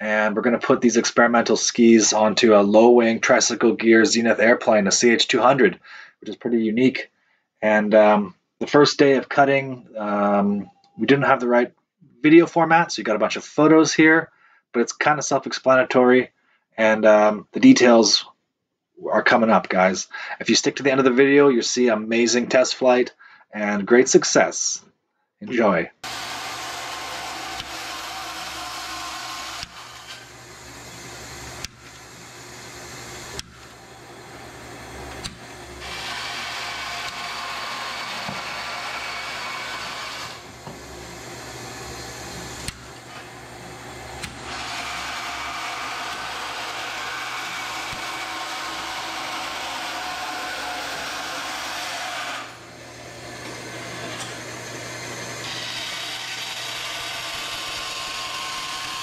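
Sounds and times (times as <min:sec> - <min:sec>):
bandsaw running: 0:26.0 - 0:59.0
power tool running: 0:26.0 - 0:59.0
sharp clicks: 0:27.6 - 0:28.6, 0:29.5 - 0:30.3, 0:31.6 - 0:32.1, 0:33.3 - 0:33.8, 0:35.1 - 0:35.5, 0:42.6 - 0:42.9, 0:44.2 - 0:44.9.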